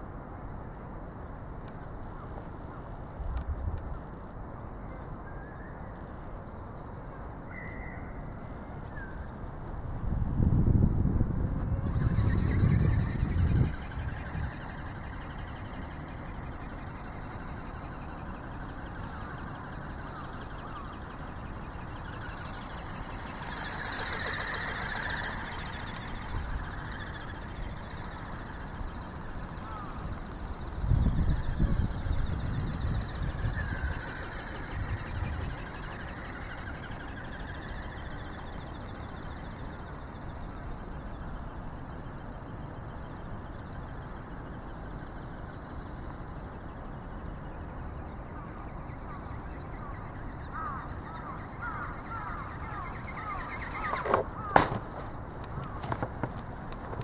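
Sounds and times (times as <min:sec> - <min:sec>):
motor high whine: 0:09.2 - 0:57.0
wind rumble on microphone: 0:09.7 - 0:16.6, 0:30.6 - 0:37.2.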